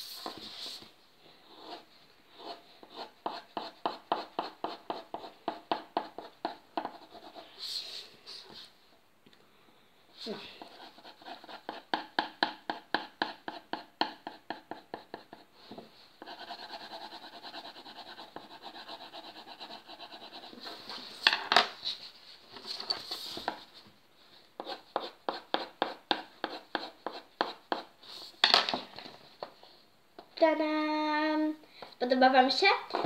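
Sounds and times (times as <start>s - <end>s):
pencil scratching on paper: 1.5s - 8.7s, 10.6s - 15.6s, 16.2s - 20.9s, 24.6s - 28.3s.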